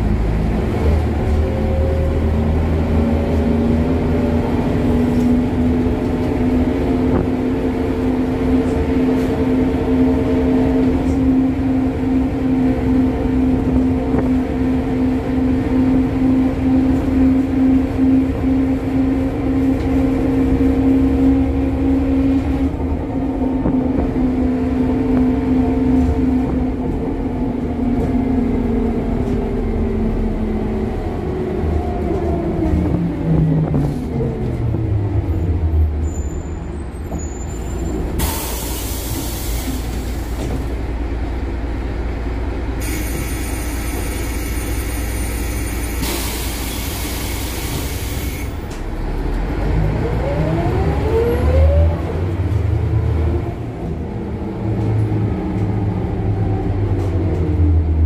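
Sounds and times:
bus diesel engine: 0.0s - 58.0s.

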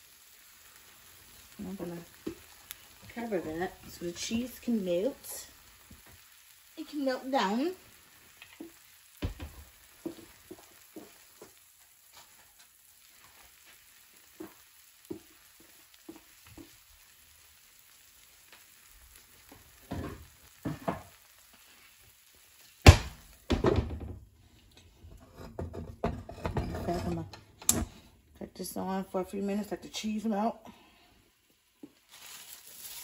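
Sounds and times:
eggs sizzling in a pan: 0.0s - 33.0s
small pops and ticks: 1.4s - 3.2s, 8.2s - 17.2s, 17.8s - 21.7s.

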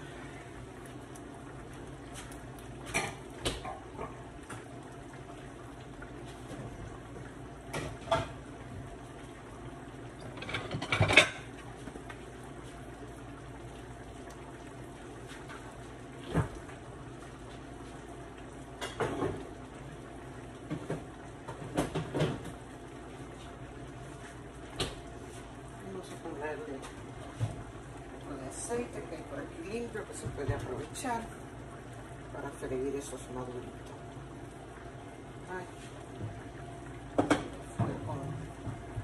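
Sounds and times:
pan simmering with low hiss: 0.0s - 39.0s
kitchenware clinking: 10.3s - 11.5s.

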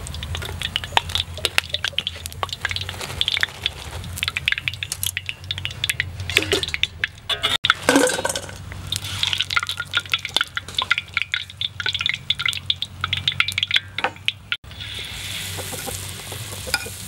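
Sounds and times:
frying oil crackling and popping: 0.0s - 17.0s
metal clattering against metal: 5.6s - 8.7s.

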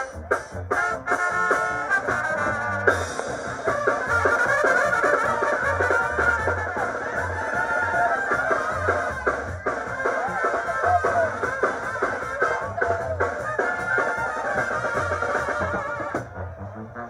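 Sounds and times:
drum strikes: 0.0s - 16.4s
sousaphone bass line: 0.0s - 17.0s
trumpets playing melody: 0.0s - 17.0s.

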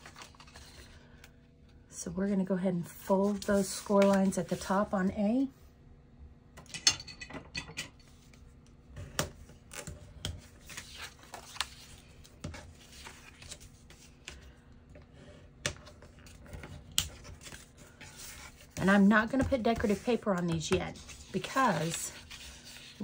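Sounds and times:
cardstock crackling and creasing: 15.8s - 23.0s
paper sliding rustles: 20.9s - 23.0s.

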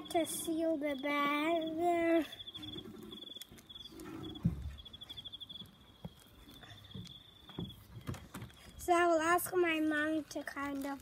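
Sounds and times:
faint high pulsing tone: 0.0s - 5.7s
plastic bag rustling and clicking: 2.6s - 11.0s.

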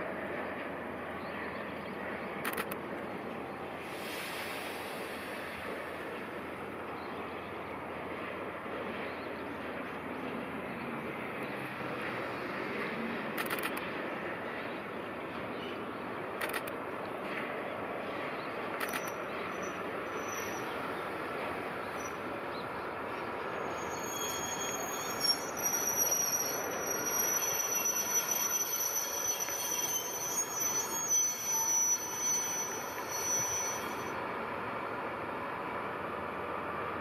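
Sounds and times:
freight train rolling over rails: 0.0s - 37.0s
wheels squealing against rails: 18.8s - 22.4s, 23.2s - 34.2s.

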